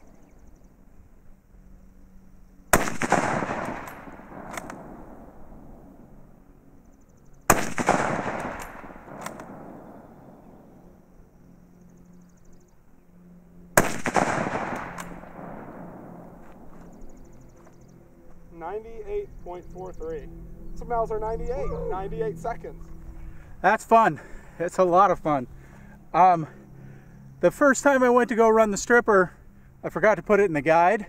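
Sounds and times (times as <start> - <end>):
rifle shots with rolling echo: 2.7 - 6.4, 7.4 - 11.0, 13.7 - 17.4
rifle bolt clicks: 3.6 - 4.8, 8.4 - 9.6, 14.7 - 15.2.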